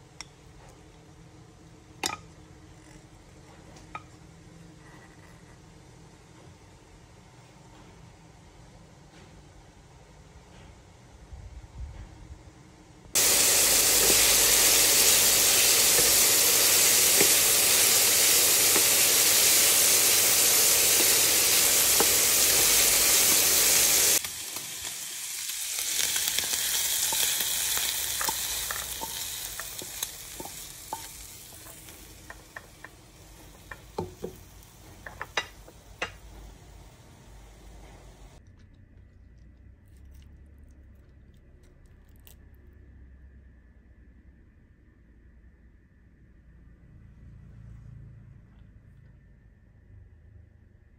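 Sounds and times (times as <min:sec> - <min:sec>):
food sizzling in a hot pan: 0:13.2 - 0:38.4.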